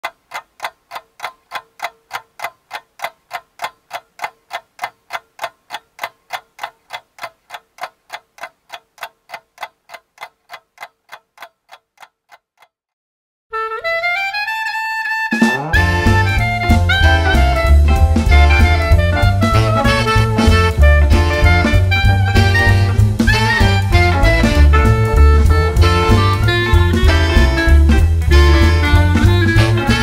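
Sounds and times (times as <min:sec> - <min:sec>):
ticking: 0:00.0 - 0:12.7
music: 0:13.5 - 0:30.0.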